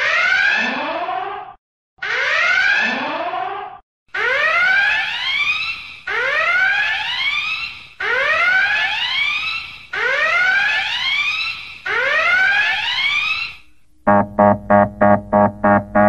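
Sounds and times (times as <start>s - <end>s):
whooping alarm siren: 0.0s - 16.0s.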